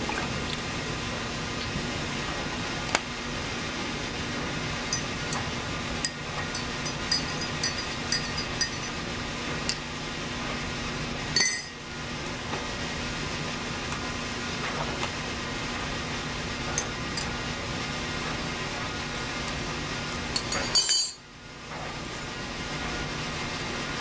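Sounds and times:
steady low hum: 0:00.0 - 0:12.2, 0:15.2 - 0:21.2
spoon clatter: 0:04.9 - 0:09.0, 0:11.4 - 0:11.8, 0:20.4 - 0:21.2
teaspoon clinking against glass mug: 0:04.9 - 0:09.0, 0:11.4 - 0:11.8, 0:20.4 - 0:21.2.

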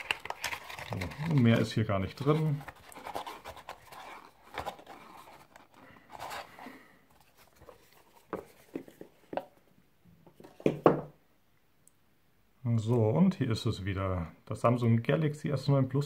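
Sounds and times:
cardboard box rustling: 0:00.0 - 0:09.5.

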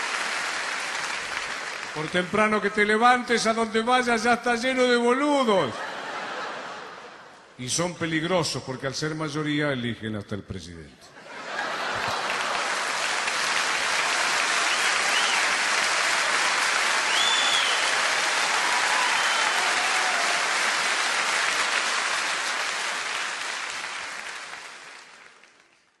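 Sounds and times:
audience applauding: 0:00.0 - 0:02.6, 0:11.5 - 0:26.0
short whistles: 0:14.7 - 0:15.5, 0:17.1 - 0:17.9.

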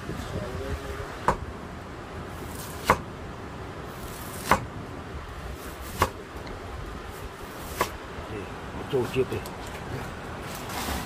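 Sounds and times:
cleaver chopping onto wooden block: 0:01.2 - 0:01.5, 0:02.8 - 0:03.1, 0:04.3 - 0:04.7, 0:05.9 - 0:06.2.

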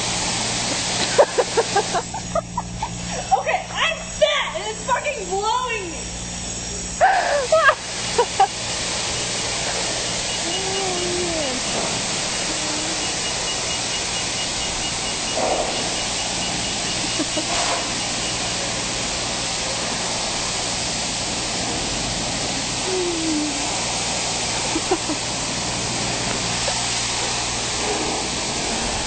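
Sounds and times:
pressure washer spray hissing: 0:00.0 - 0:29.0
pump humming: 0:00.0 - 0:29.0.

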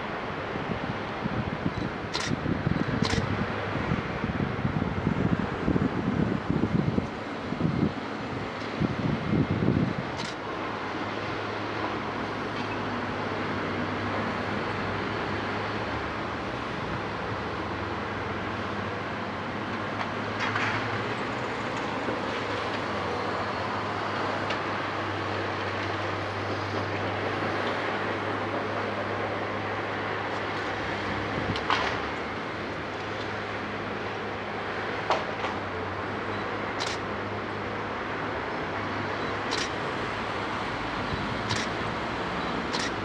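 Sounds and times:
excavator diesel engine running: 0:07.6 - 0:12.5, 0:26.0 - 0:43.0.

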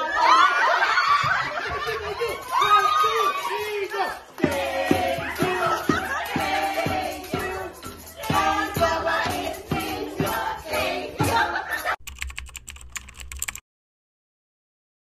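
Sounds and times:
shakers and maracas: 0:01.0 - 0:13.6
group singing: 0:03.2 - 0:12.0
keyboard typing clicks: 0:12.0 - 0:13.6.

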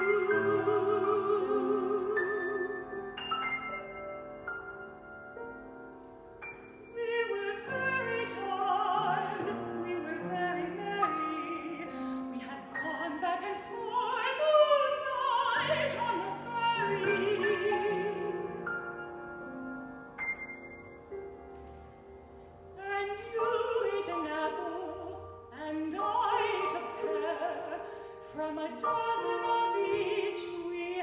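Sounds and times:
woman singing with vibrato: 0:00.0 - 0:03.2, 0:06.9 - 0:19.0, 0:22.8 - 0:31.0
grand piano: 0:00.0 - 0:31.0.

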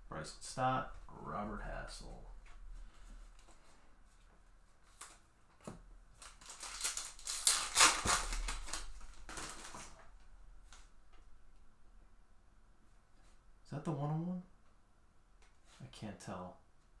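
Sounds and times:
foil wrapper crinkling and tearing: 0:06.1 - 0:10.0.

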